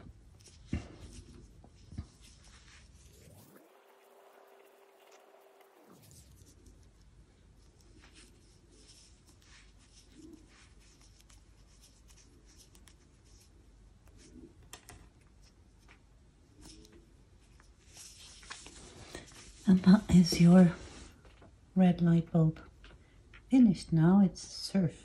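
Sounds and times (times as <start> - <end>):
crochet hook rustling yarn: 0.0 - 21.4.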